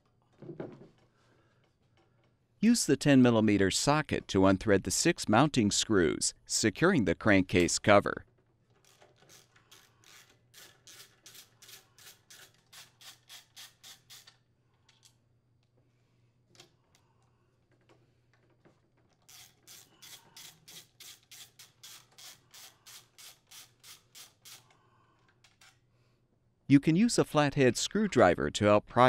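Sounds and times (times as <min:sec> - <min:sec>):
socket ratchet strokes: 0:08.8 - 0:14.4, 0:19.2 - 0:24.8.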